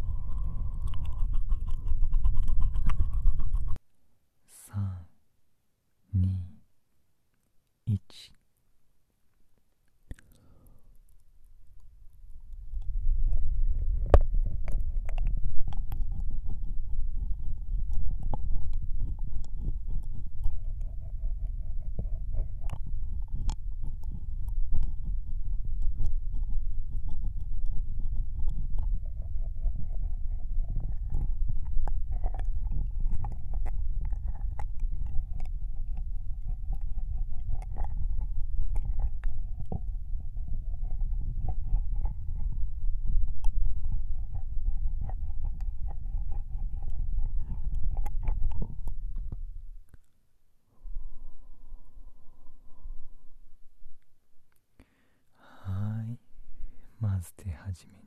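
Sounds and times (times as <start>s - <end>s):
steady low rumble: 0.0s - 3.8s, 11.0s - 49.9s, 50.7s - 54.5s
wet licks and mouth clicks: 0.0s - 3.8s, 9.9s - 50.1s
wet licking and lip smacks: 0.2s - 3.8s, 30.0s - 39.9s.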